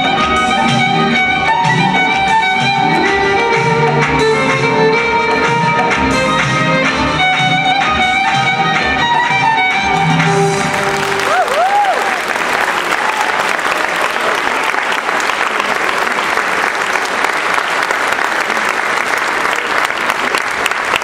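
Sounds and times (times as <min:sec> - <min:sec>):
audience applauding: 0:10.2 - 0:21.0
crowd whooping: 0:10.9 - 0:15.0.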